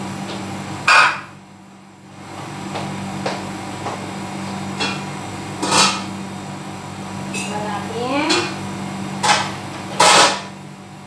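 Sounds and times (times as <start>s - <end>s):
steady low hum: 0.0s - 11.0s
pots and pans clattering: 5.6s - 6.1s, 9.2s - 10.5s.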